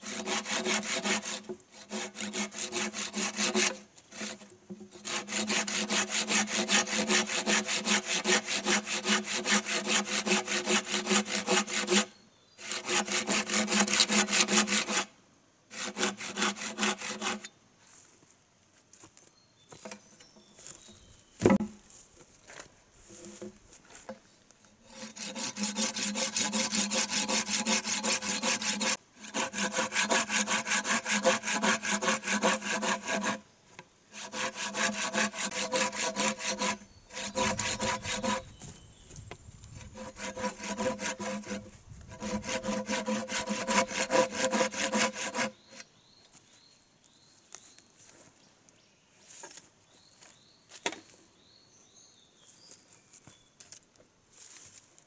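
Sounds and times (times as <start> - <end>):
hand saw cutting bamboo: 0.0 - 15.1, 15.7 - 17.5, 24.9 - 33.4, 34.1 - 38.5, 39.8 - 45.8.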